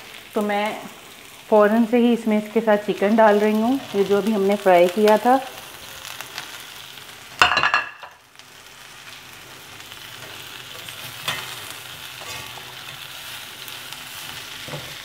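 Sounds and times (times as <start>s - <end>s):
food sizzling in a pan: 0.0s - 15.0s
metal spatula scraping pan: 12.2s - 13.0s.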